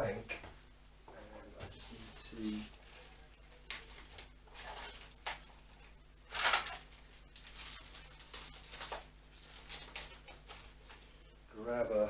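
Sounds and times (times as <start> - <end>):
low steady hum: 0.0 - 12.0
rustling handling noises: 1.5 - 11.2.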